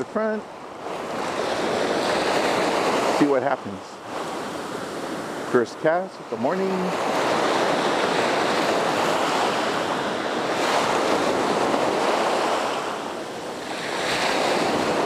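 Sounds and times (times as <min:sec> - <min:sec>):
small waves breaking on beach: 0:00.0 - 0:15.0
wind on microphone: 0:06.2 - 0:15.0.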